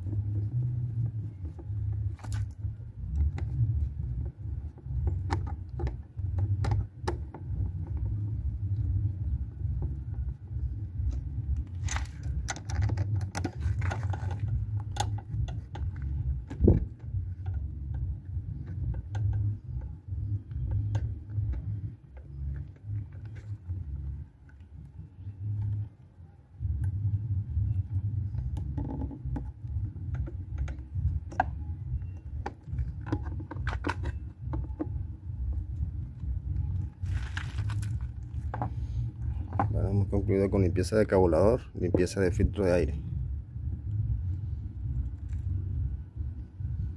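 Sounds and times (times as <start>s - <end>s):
low uneven rumble: 0.0s - 46.9s
plastic parts clicking and rattling: 11.0s - 24.6s, 32.2s - 39.8s.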